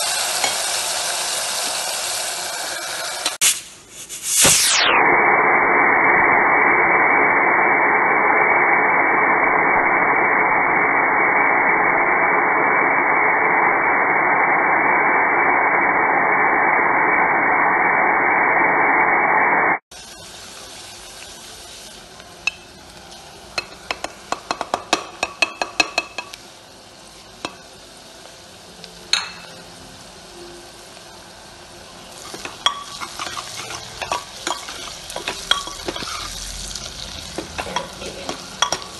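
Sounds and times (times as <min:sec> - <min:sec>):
onions frying: 0:00.0 - 0:04.8, 0:19.9 - 0:38.9
pressure cooker steam hissing: 0:00.0 - 0:04.8, 0:19.9 - 0:28.2, 0:32.1 - 0:38.9
metal ladle clinking and scraping: 0:32.2 - 0:36.4, 0:37.4 - 0:38.9.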